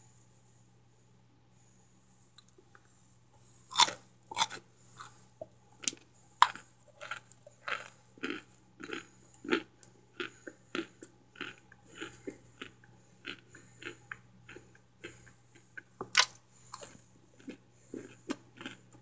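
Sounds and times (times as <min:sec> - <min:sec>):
chewing brittle chunks: 0:03.7 - 0:05.2, 0:05.8 - 0:19.0
crunchy bites: 0:03.7 - 0:05.2, 0:05.8 - 0:18.9.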